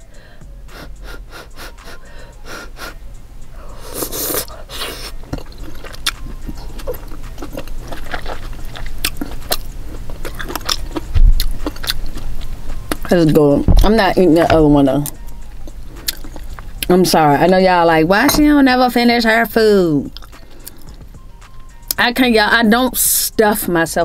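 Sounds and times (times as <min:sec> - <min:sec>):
person chewing wet mouth clicks: 0:03.9 - 0:13.1, 0:16.0 - 0:16.6.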